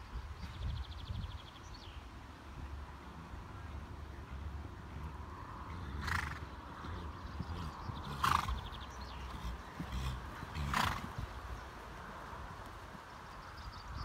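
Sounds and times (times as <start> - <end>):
horse snorting: 5.0 - 11.3.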